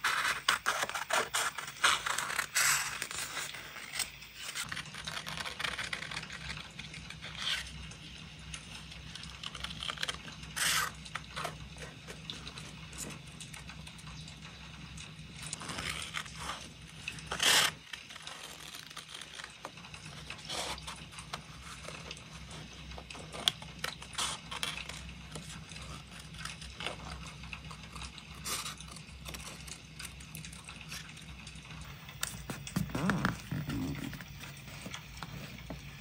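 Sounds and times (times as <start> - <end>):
paper rustling: 0.0 - 6.6, 31.8 - 36.0
scissors snipping paper: 0.0 - 6.6.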